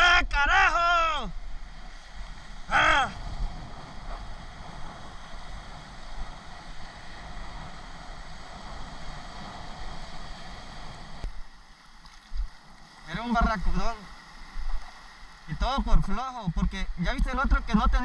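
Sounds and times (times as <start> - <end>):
person calling: 0.0 - 1.3, 2.7 - 3.2
wind on microphone: 1.3 - 11.4
small waves washing around legs: 1.6 - 15.5.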